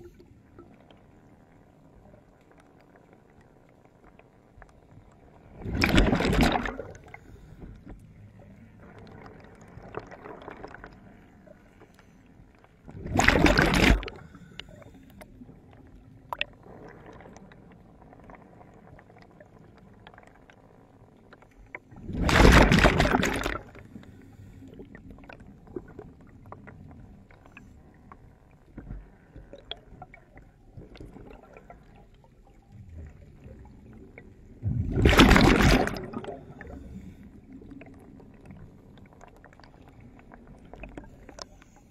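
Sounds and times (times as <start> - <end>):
faint clicks: 0.0 - 5.3, 14.1 - 22.0, 36.2 - 41.9
underwater bubble bursts: 5.0 - 7.2, 7.8 - 11.5, 12.9 - 20.2, 21.8 - 24.0, 24.7 - 41.4.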